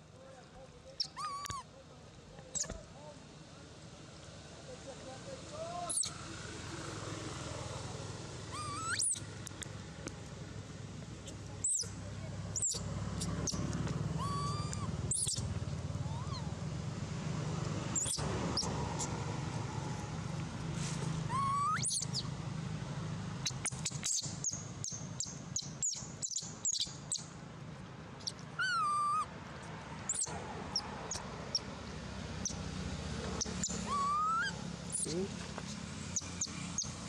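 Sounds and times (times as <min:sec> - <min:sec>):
infant monkey whimpering coos: 0:01.0 - 0:01.7, 0:08.5 - 0:09.2, 0:14.2 - 0:15.4, 0:16.0 - 0:16.6, 0:21.3 - 0:22.0, 0:28.6 - 0:29.3, 0:33.6 - 0:35.2
high chirps: 0:08.5 - 0:09.3, 0:11.2 - 0:16.5, 0:17.9 - 0:19.2, 0:21.3 - 0:22.3, 0:23.4 - 0:27.3, 0:30.1 - 0:31.7, 0:33.4 - 0:37.0.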